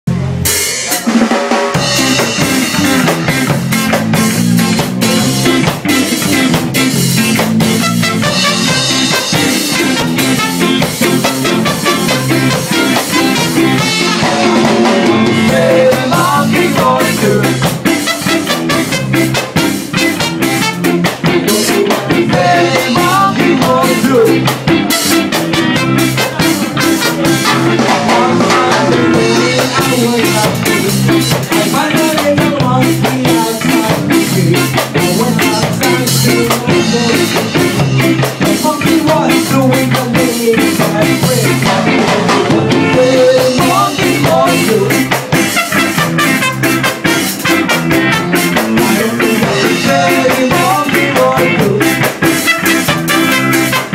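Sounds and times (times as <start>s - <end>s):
drum kit ska beat: 0.1s - 53.9s
electric guitar: 0.1s - 53.9s
person singing: 4.7s - 6.6s, 8.5s - 18.4s, 19.4s - 45.4s, 48.1s - 52.4s.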